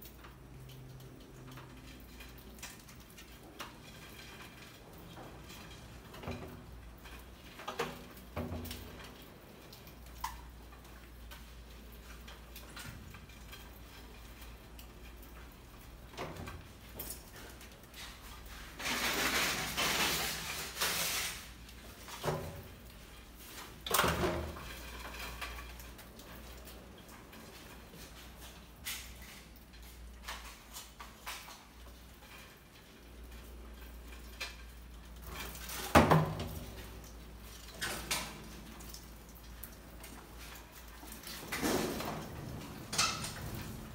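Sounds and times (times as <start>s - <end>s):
rats scrabbling on wood and glass: 0.0s - 43.9s.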